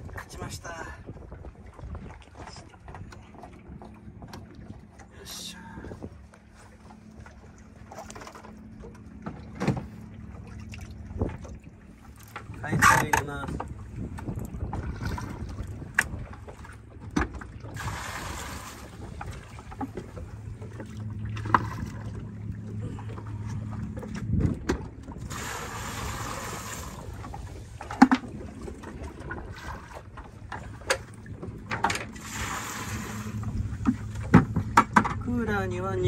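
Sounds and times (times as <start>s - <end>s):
steady low hum: 2.6s - 36.0s
water splashing from a bucket: 17.6s - 20.2s, 25.2s - 30.2s, 31.7s - 35.2s.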